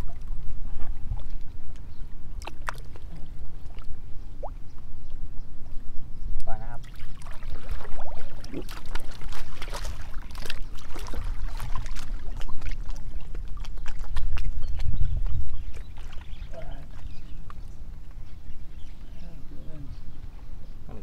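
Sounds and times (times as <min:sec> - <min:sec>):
wind rumble on microphone: 0:00.0 - 0:21.0
water splashing and dripping: 0:01.0 - 0:04.6, 0:06.8 - 0:18.2.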